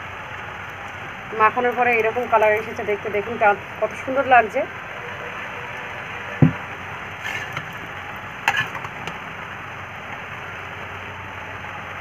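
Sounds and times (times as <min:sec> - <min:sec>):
gas burner hiss: 0:06.2 - 0:11.2
dull knock: 0:06.4 - 0:06.6.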